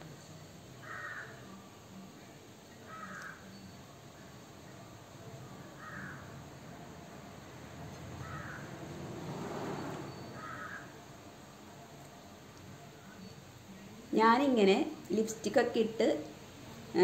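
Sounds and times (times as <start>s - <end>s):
crow cawing: 0.8s - 1.4s, 2.9s - 3.5s, 5.8s - 6.4s, 8.2s - 8.8s, 10.4s - 11.0s
soft rushing noise: 8.0s - 11.0s.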